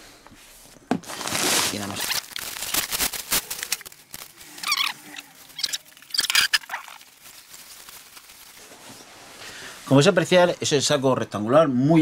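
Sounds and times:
nylon fabric rustling and crinkling: 0.4 - 10.2
squeaky fabric rubs: 4.4 - 9.4.

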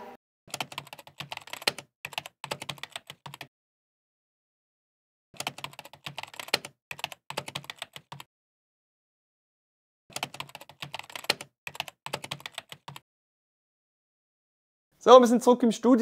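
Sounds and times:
keyboard typing clicks: 5.4 - 8.3, 10.1 - 13.0.

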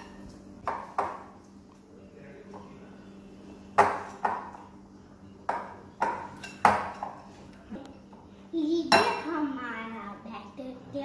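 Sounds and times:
child's voice: 8.5 - 11.0.

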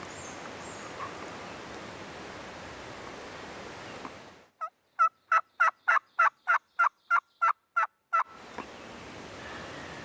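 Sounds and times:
windy hiss: 0.0 - 4.6, 8.3 - 10.0
wild turkey yelps: 4.6 - 8.3.

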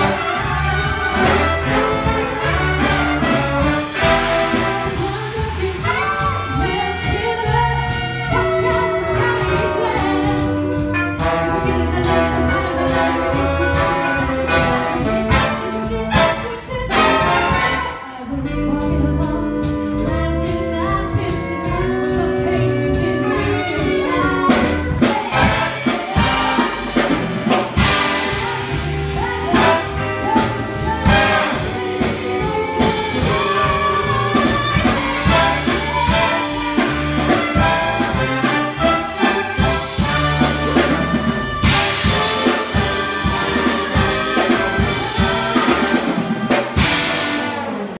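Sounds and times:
big band playing swing jazz: 0.0 - 48.0.

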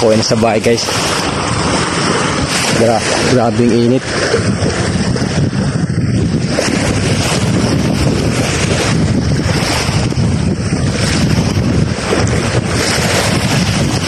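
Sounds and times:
small waves breaking on sand: 0.0 - 14.0
wind buffeting microphone: 0.0 - 14.0.

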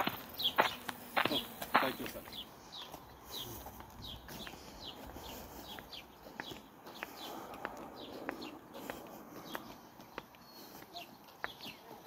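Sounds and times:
footsteps on paved path: 0.0 - 12.0.

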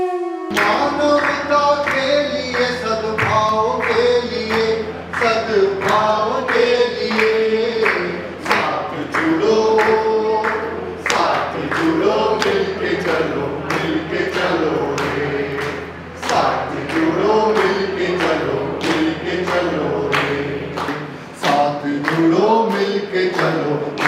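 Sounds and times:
group singing in unison: 0.0 - 24.0
steady regular beat: 0.5 - 24.0.

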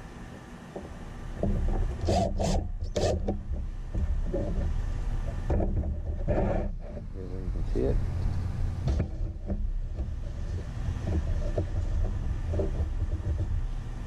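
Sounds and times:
steady low rumble: 0.0 - 14.0
impact driver driving screws: 2.0 - 3.3.

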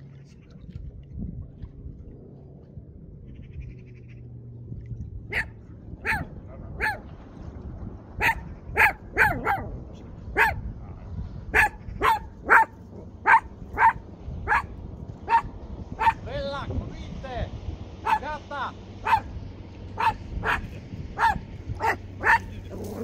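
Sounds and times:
dog barking: 5.3 - 7.1, 8.2 - 9.8, 10.4 - 14.7, 15.3 - 16.2, 18.0 - 18.2, 19.0 - 19.3, 20.0 - 23.0.

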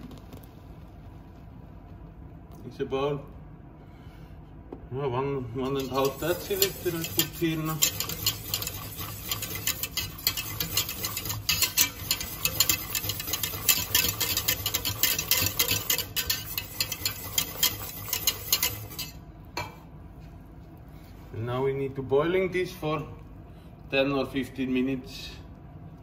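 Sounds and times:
whisk beating sauce in metal pot: 5.5 - 19.3.

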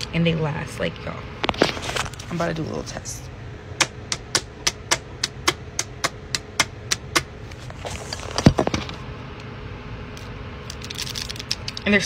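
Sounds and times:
nails tapping on wall: 3.8 - 7.3.

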